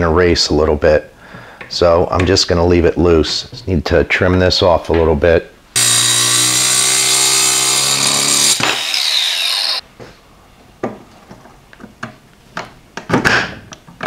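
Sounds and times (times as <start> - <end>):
angle grinder cutting metal: 5.8 - 9.8
grinder winding down whine: 5.8 - 9.8.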